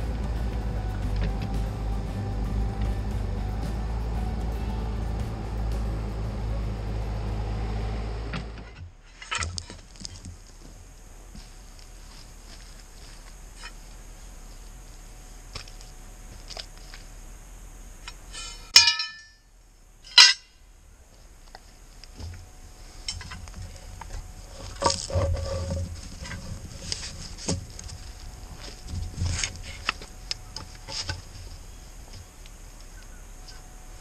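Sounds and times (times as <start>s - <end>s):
low thumps: 0.0s - 14.8s
footsteps in wet mud: 9.4s - 17.1s
clinks: 18.0s - 19.5s, 20.1s - 20.6s.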